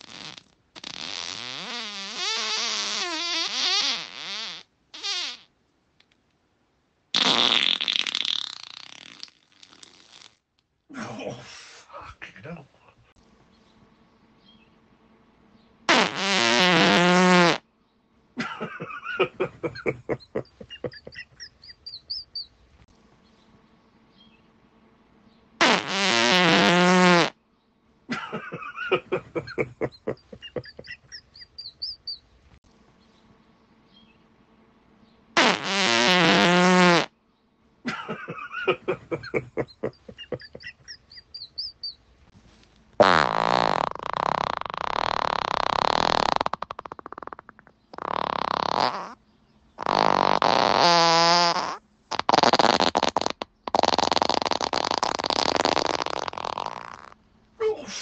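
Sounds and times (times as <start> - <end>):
loud drawn-out fart: 0.0 - 5.5, 7.1 - 10.5, 15.9 - 17.7, 18.4 - 22.2, 25.6 - 27.4, 28.1 - 32.0, 35.4 - 37.2, 37.9 - 41.7, 43.0 - 49.2, 49.8 - 57.2
sputtering quick pops: 7.1 - 10.7, 25.6 - 27.3, 43.0 - 49.2, 49.8 - 57.2
faint high chirps: 20.4 - 22.6, 30.1 - 32.3, 40.0 - 42.0.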